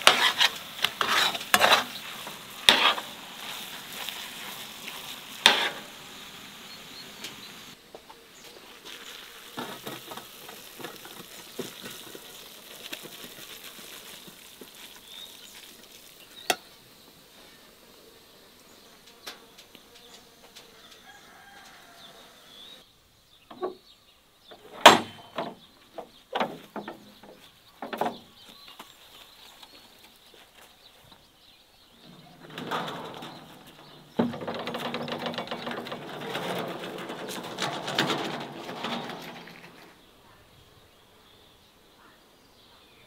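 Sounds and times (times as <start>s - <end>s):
wooden gate creaking open: 24.6s - 28.4s, 32.0s - 40.0s.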